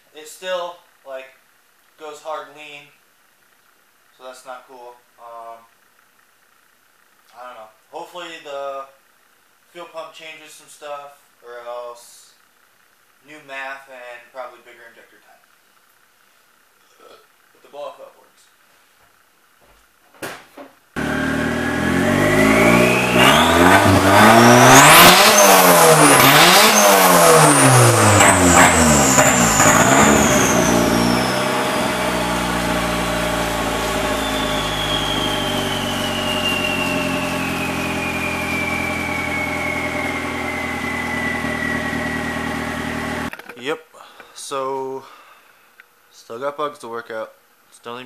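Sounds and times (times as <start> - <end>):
car engine revving and idling: 21.0 - 43.3
turbo whistle: 21.2 - 31.8, 33.7 - 42.8.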